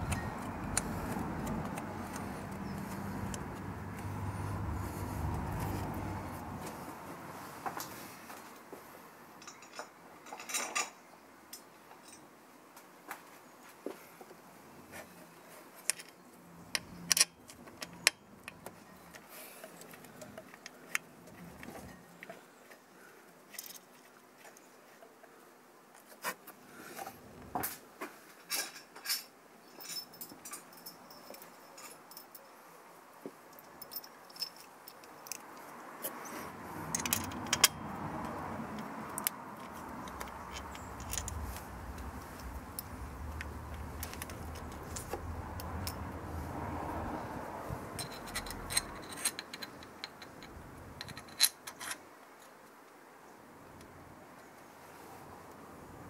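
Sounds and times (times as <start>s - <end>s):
metal tools clinking: 9.4s - 11.0s, 28.5s - 32.4s, 36.2s - 37.8s, 39.6s - 43.0s, 43.7s - 46.0s, 47.9s - 52.0s
tools tapping on metal: 36.9s - 37.8s
light metal scrapes: 47.7s - 52.0s.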